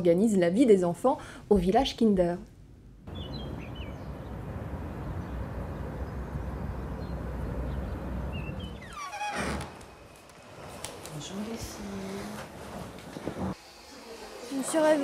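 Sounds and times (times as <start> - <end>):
birds chirping: 3.1 - 9.3.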